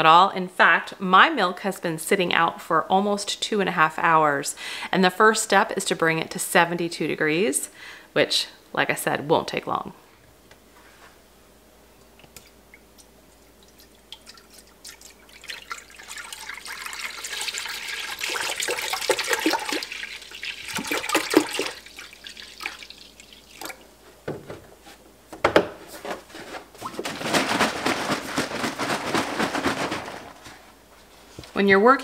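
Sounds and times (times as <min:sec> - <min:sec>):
milk pouring into metal pot: 0:13.5 - 0:23.9.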